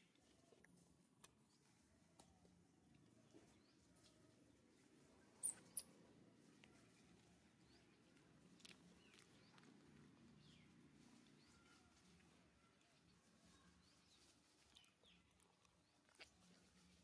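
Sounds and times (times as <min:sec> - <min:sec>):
infant monkey squeaking: 0:05.4 - 0:05.8.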